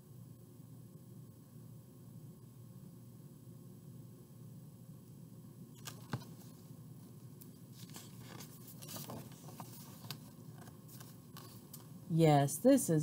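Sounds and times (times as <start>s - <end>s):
paper pages turning: 5.8s - 6.6s, 7.7s - 11.9s.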